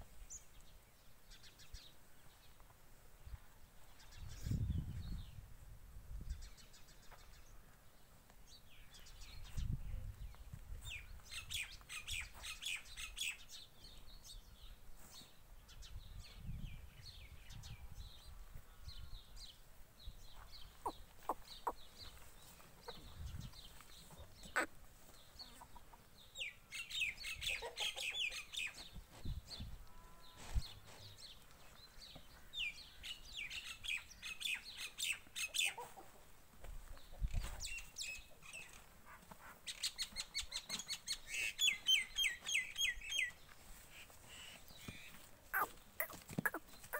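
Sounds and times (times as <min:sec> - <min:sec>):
birds chirping: 0:18.7 - 0:28.5, 0:39.7 - 0:46.9.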